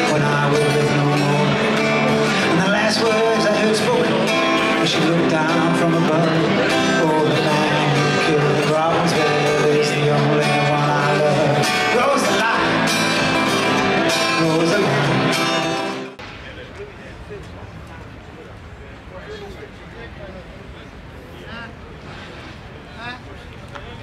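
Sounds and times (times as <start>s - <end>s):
person singing: 0.0s - 16.1s
acoustic guitar: 0.0s - 16.3s.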